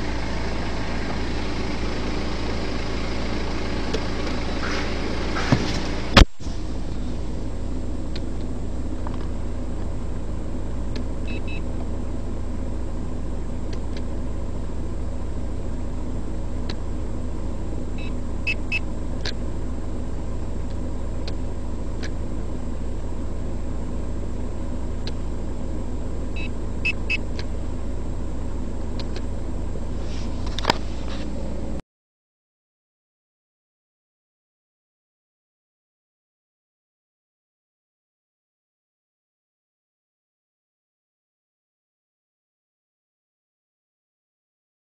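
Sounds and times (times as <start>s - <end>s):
car cabin engine rumble: 0.0s - 31.8s.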